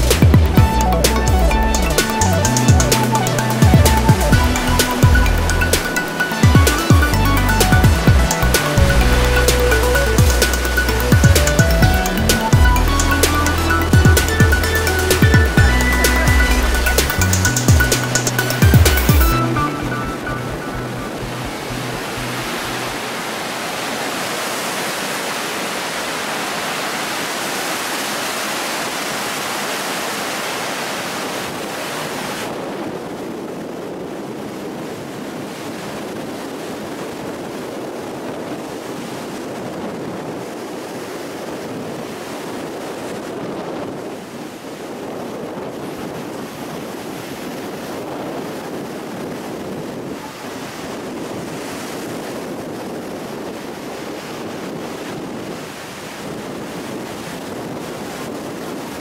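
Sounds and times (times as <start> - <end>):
surf breaking on shore: 0.1 - 59.0
wind buffeting microphone: 31.1 - 59.0.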